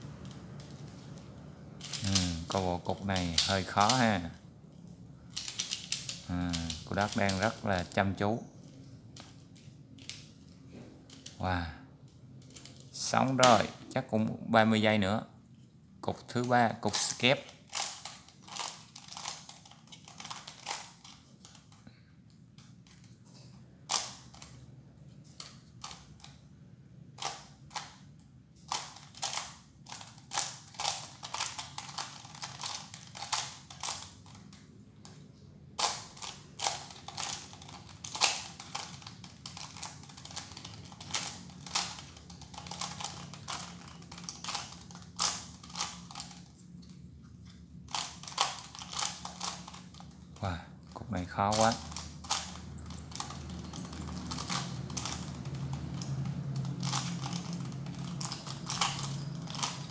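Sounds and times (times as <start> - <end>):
plastic puzzle clicking: 0.1 - 4.2, 5.3 - 8.0, 8.6 - 10.5, 11.1 - 11.4, 12.4 - 13.7, 16.9 - 21.8, 27.2 - 28.0, 28.6 - 47.0, 47.9 - 59.9.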